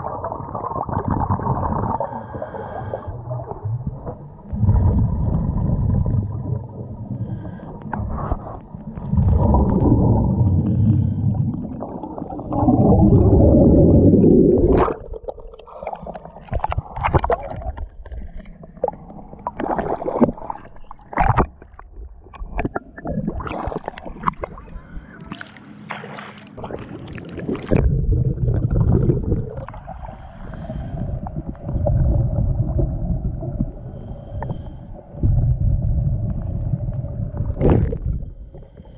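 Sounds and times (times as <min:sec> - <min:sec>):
muffled underwater rumbling: 0:00.0 - 0:38.9
water splashing: 0:22.4 - 0:30.7.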